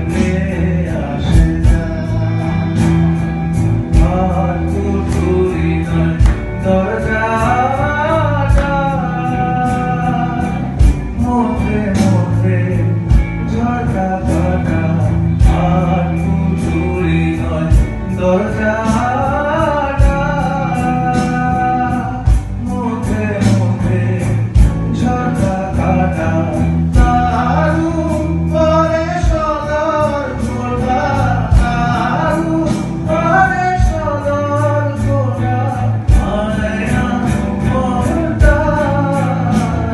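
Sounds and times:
drum kit steady beat: 0:00.0 - 0:39.9
electric bass: 0:00.0 - 0:39.9
electric guitars: 0:00.0 - 0:39.9
man singing into a microphone: 0:00.0 - 0:39.9.

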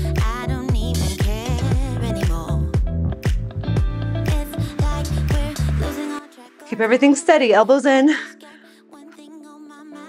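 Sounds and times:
upbeat background music: 0:00.0 - 0:10.0
deep kick drum: 0:00.2 - 0:05.6.

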